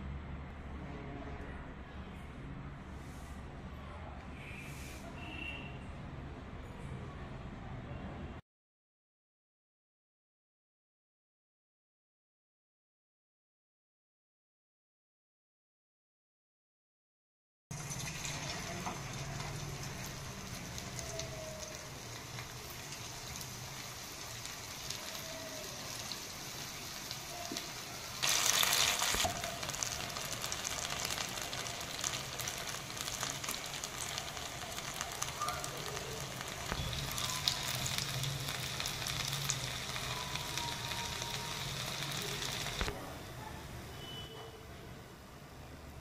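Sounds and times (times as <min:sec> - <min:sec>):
food deep-frying in oil: 0:17.7 - 0:42.9.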